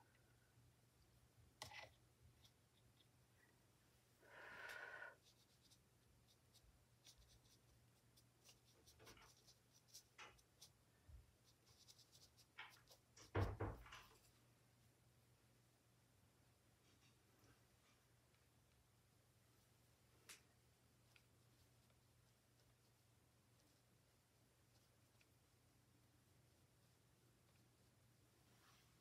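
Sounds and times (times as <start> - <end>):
ink brush swishing on paper: 5.2 - 10.8.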